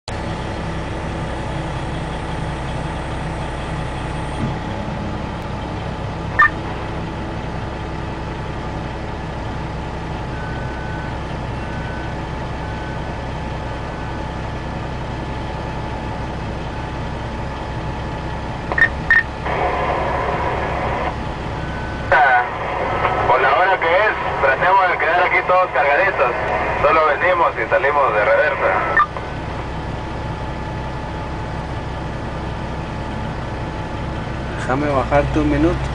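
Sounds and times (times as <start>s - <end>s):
diesel engines running: 0.1s - 35.9s
reversing alarm beeps: 6.4s - 6.6s, 10.3s - 13.2s, 18.7s - 19.4s, 21.5s - 22.5s, 28.9s - 29.2s
sharp beeps: 6.4s - 6.6s, 18.7s - 19.3s, 28.9s - 29.2s.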